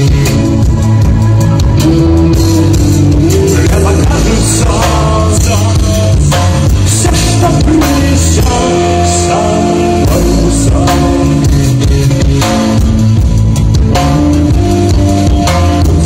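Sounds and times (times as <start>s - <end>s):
man singing: 0.0s - 0.9s, 1.8s - 12.9s, 15.2s - 16.0s
bass guitar: 0.0s - 16.0s
drum kit: 0.0s - 16.0s
electric guitar: 0.0s - 16.0s.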